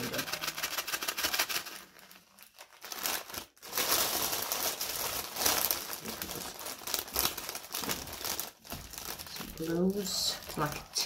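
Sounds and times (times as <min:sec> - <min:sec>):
plastic bags crinkling: 0:00.0 - 0:11.0.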